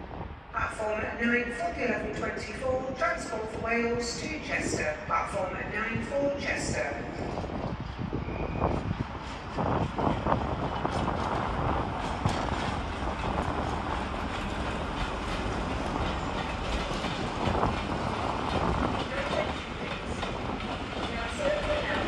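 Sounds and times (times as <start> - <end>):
train running on track: 0.0 - 22.0
wheels clicking on rails: 9.3 - 22.0.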